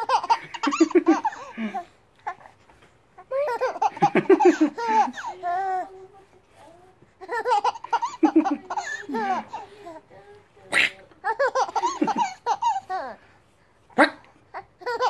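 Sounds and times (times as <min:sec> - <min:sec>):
baby laughing: 0:00.0 - 0:02.5, 0:03.2 - 0:06.0, 0:07.2 - 0:10.0, 0:10.6 - 0:13.2, 0:14.0 - 0:15.0.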